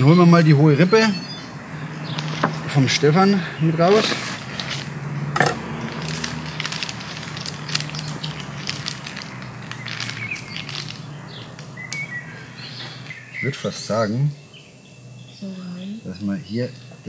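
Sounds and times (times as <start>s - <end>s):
plastic packaging crackling: 3.9s - 12.3s.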